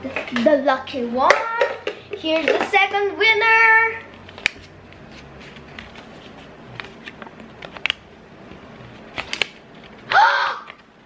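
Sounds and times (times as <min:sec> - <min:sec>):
paper crinkling: 0:04.1 - 0:08.0.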